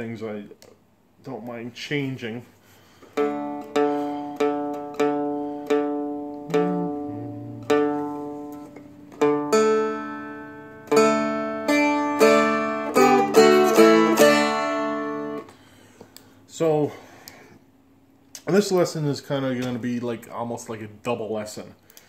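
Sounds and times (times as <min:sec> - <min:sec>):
dulcimer strings plucked and strummed: 0:03.2 - 0:15.4.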